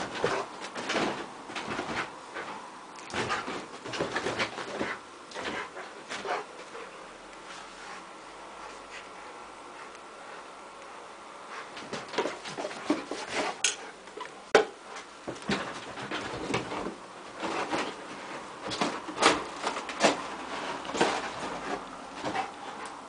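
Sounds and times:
dog thumping and scraping on bed: 0:00.0 - 0:06.8, 0:11.8 - 0:13.6, 0:15.3 - 0:22.8.

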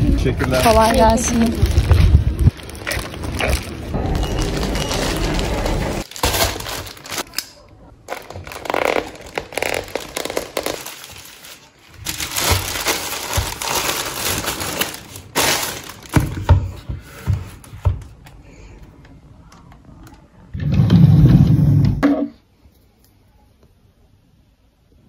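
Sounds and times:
plastic bag rustling: 0:00.0 - 0:07.4, 0:08.1 - 0:16.6.

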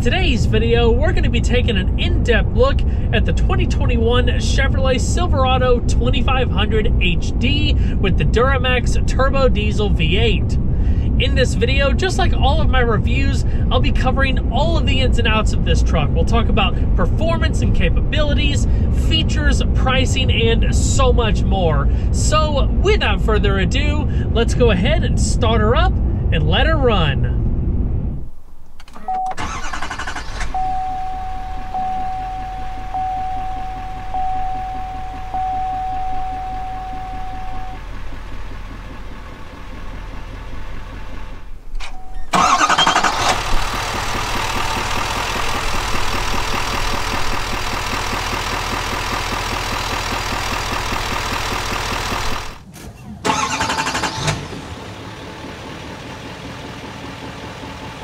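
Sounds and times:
diesel engine starting and idling: 0:00.0 - 0:58.0
steady chime tone: 0:30.6 - 0:37.8.

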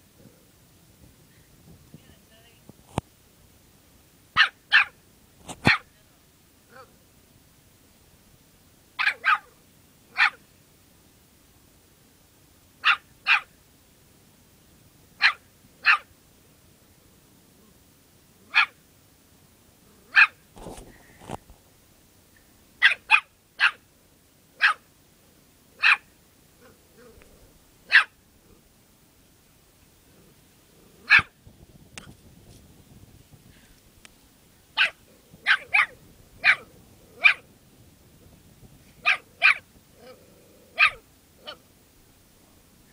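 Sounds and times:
small dog barking: 0:04.4 - 0:05.9, 0:06.7 - 0:07.0, 0:09.0 - 0:10.4, 0:12.8 - 0:13.5, 0:15.2 - 0:16.1, 0:18.5 - 0:18.8, 0:20.1 - 0:20.4, 0:22.8 - 0:23.8, 0:24.6 - 0:24.9, 0:25.8 - 0:28.2, 0:31.0 - 0:31.4, 0:34.8 - 0:37.5, 0:39.0 - 0:41.6.

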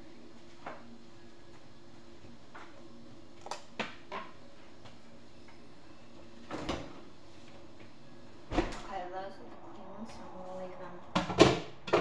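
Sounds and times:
faint steady hum: 0:00.0 - 0:12.0
kitchen knocks and clicks: 0:11.2 - 0:12.0.

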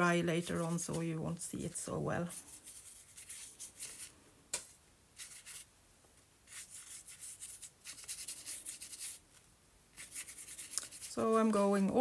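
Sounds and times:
paintbrush rubbing on paper: 0:00.3 - 0:01.2, 0:02.2 - 0:04.1, 0:04.7 - 0:05.7, 0:06.4 - 0:09.2, 0:09.9 - 0:11.8.

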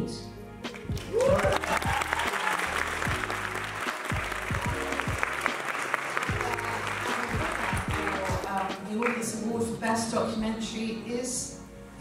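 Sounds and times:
music with deep bass beat: 0:00.6 - 0:05.6, 0:06.3 - 0:08.8
audience applauding: 0:00.7 - 0:09.2.

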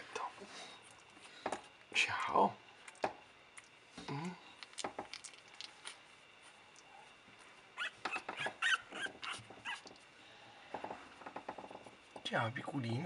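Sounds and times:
puppy squeaking: 0:07.8 - 0:10.0.

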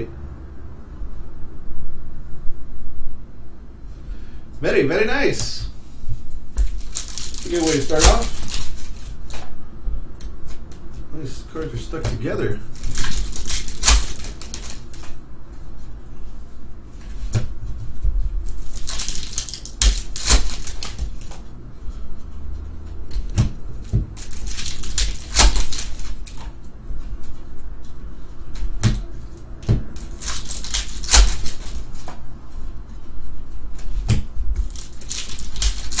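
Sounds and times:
foil wrapper crinkling: 0:06.6 - 0:09.3, 0:12.7 - 0:15.1, 0:18.4 - 0:21.4, 0:24.2 - 0:26.5, 0:30.0 - 0:32.0, 0:34.6 - 0:36.0
cards rustling and sliding: 0:06.6 - 0:09.4, 0:12.8 - 0:15.2, 0:18.5 - 0:21.5, 0:24.2 - 0:26.6, 0:30.0 - 0:32.2, 0:34.6 - 0:36.0.

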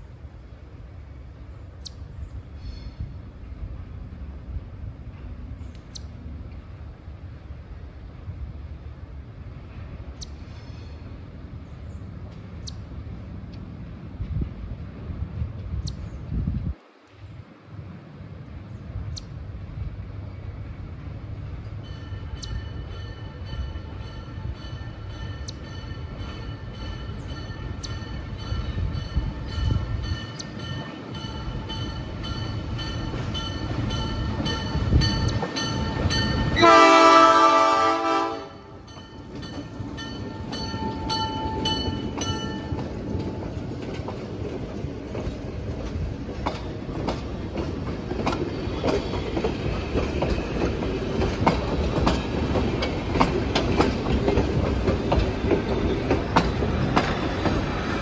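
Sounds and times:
locomotive engine rumbling: 0:17.2 - 0:58.0
train wheels clicking over rail joints: 0:21.6 - 0:36.7, 0:38.8 - 0:58.0
locomotive horn: 0:36.5 - 0:38.8.

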